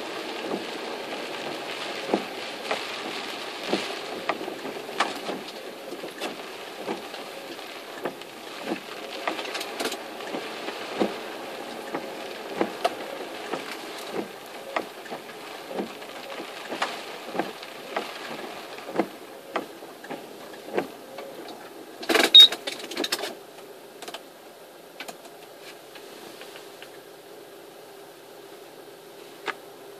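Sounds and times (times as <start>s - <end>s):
car cabin rumble: 0.0s - 22.5s
raindrops striking car: 0.0s - 27.1s.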